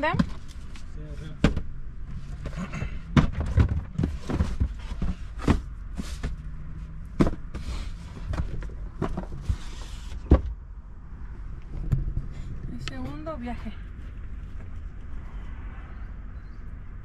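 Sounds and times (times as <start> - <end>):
cardboard boxes thumping: 2.3 - 6.4, 7.1 - 10.5.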